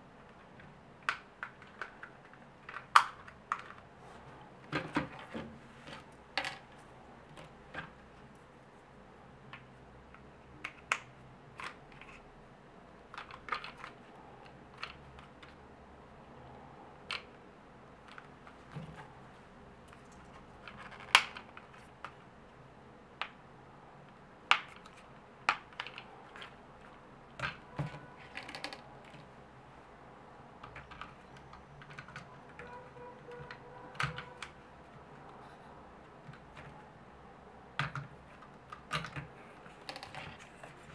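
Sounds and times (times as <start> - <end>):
plastic toy clicking and snapping: 0.3 - 3.9, 9.5 - 12.2, 13.1 - 15.6, 19.9 - 22.2, 24.5 - 26.6, 33.3 - 34.6, 37.8 - 40.4.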